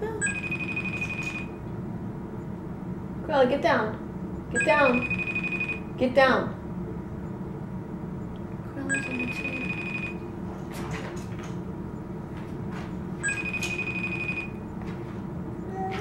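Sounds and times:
phone call ringing tone: 0:00.2 - 0:01.6, 0:04.6 - 0:05.9, 0:08.8 - 0:10.2, 0:13.2 - 0:14.6.

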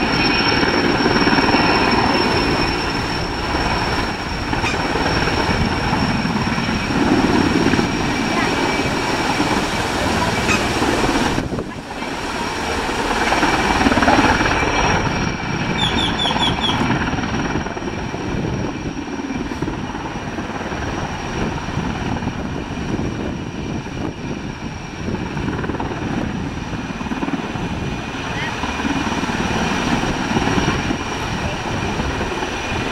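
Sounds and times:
rotor wash spraying water: 0:00.0 - 0:15.1
helicopter rotor thrum: 0:00.0 - 0:32.9
turbine whine: 0:00.0 - 0:32.9.

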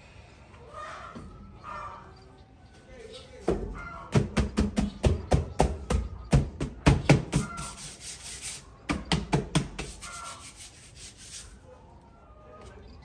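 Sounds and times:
hands scraping textured canvas: 0:07.3 - 0:08.6, 0:09.6 - 0:11.6.

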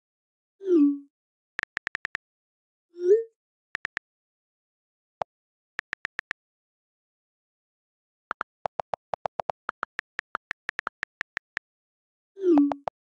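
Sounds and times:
on-screen keyboard key clicks: 0:01.6 - 0:02.2, 0:03.8 - 0:04.0, 0:05.8 - 0:06.4, 0:08.3 - 0:11.6, 0:12.6 - 0:13.0.

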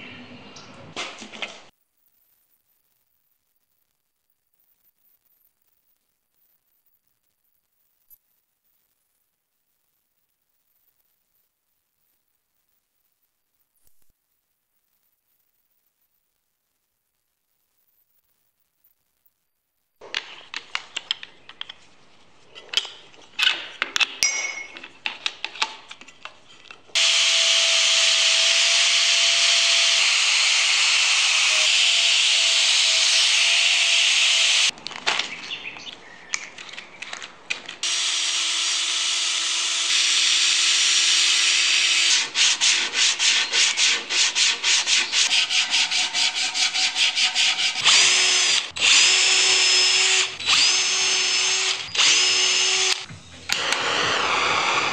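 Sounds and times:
angle grinder carving wood: 0:26.9 - 0:34.7, 0:37.8 - 0:54.9
hand sanding wood: 0:41.9 - 0:47.8.

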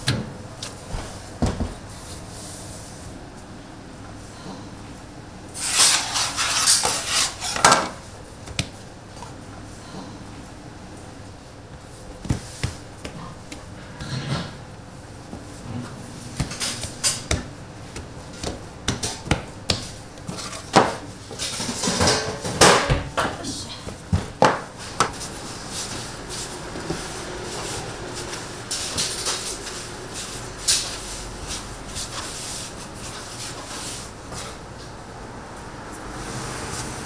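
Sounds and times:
kitchen utensils clattering: 0:15.7 - 0:17.4, 0:20.3 - 0:23.6.

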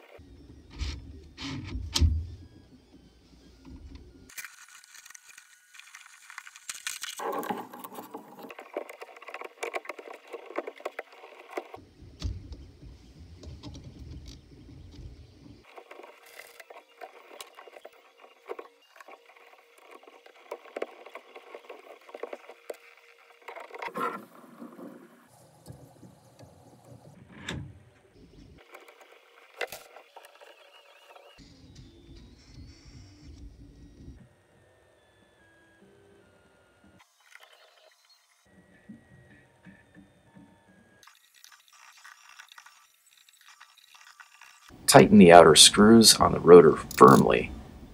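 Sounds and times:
plastic parts clicking and scraping: 0:00.6 - 0:02.2, 0:03.6 - 0:25.1.

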